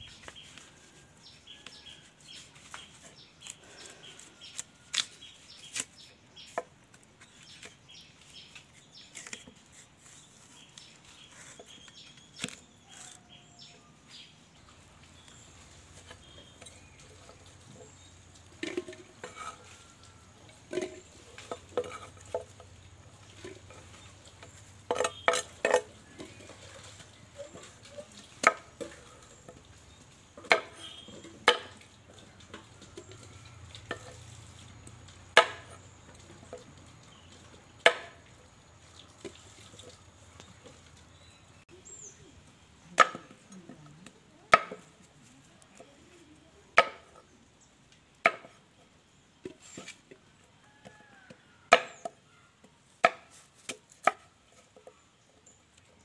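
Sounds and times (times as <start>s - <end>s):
machete chopping on wooden board: 35.3s - 35.8s, 37.8s - 38.2s, 44.5s - 44.9s, 48.2s - 48.6s, 51.7s - 52.2s, 53.0s - 54.2s.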